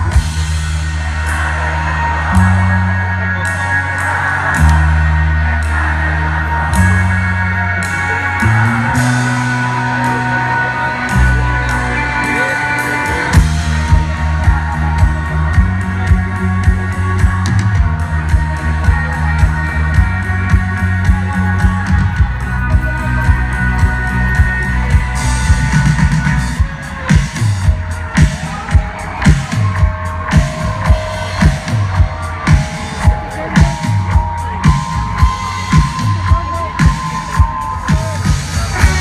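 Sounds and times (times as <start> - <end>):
live rock band playing: 0.0 - 39.0
drum kit beat: 13.1 - 39.0.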